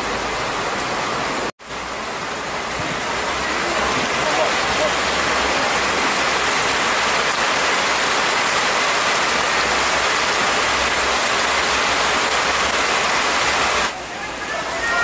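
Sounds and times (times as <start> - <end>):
heavy rain on a pond: 0.0 - 15.0.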